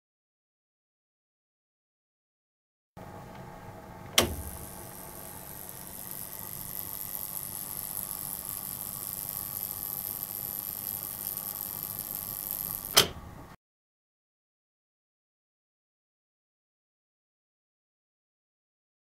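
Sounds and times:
igniter buzzing hiss with whine: 4.1s - 13.2s
sharp click: 4.1s - 13.2s.

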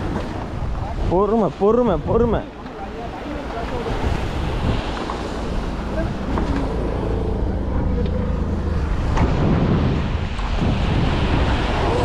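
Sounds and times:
wind buffeting microphone: 0.0s - 12.0s
low motor rumble: 4.1s - 12.0s.

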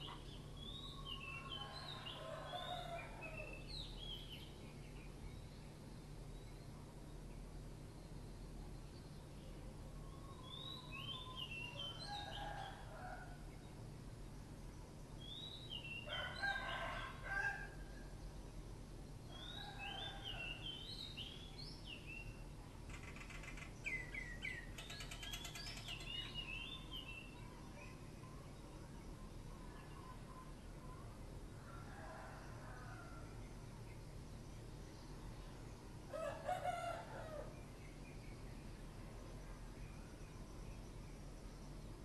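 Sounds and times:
roosters crowing: 1.4s - 3.6s, 11.8s - 13.5s, 16.0s - 17.9s, 19.4s - 20.7s, 31.6s - 33.3s, 36.1s - 37.6s
small birds chirping: 18.2s - 31.2s.

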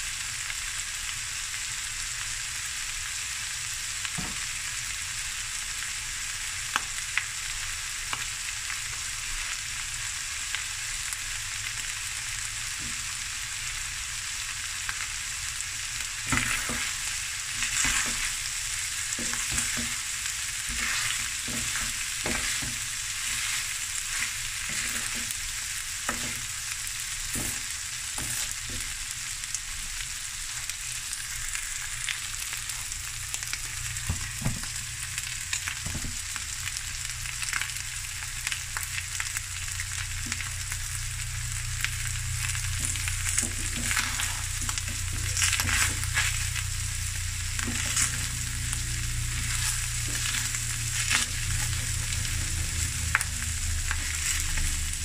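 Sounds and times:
rice sizzling in a pan: 0.0s - 55.0s
wooden spatula scraping a pan: 16.3s - 18.5s, 19.1s - 26.5s, 27.3s - 29.0s, 42.8s - 46.6s, 47.6s - 48.5s, 49.3s - 52.8s.

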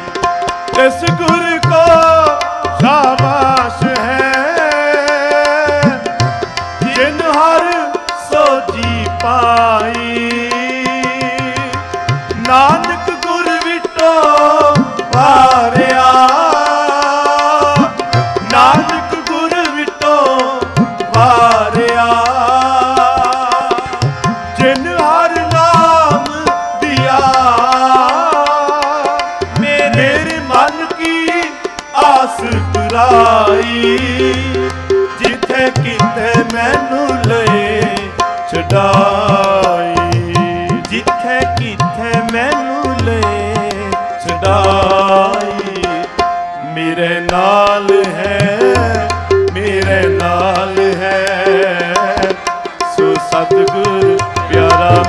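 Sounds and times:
harmonium drone: 0.0s - 55.0s
person singing: 0.0s - 55.0s
tabla drumming: 0.0s - 55.0s.

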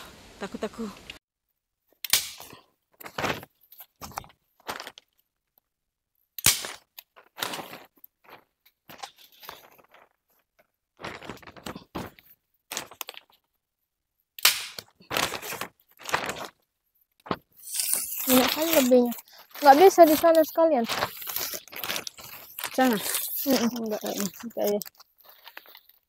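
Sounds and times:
plastic sheet crinkling: 3.0s - 5.2s, 6.6s - 13.5s, 14.7s - 26.0s.

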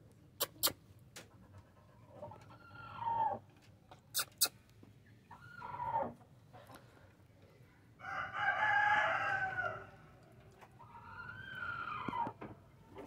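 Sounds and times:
rooster crowing: 8.0s - 10.0s.

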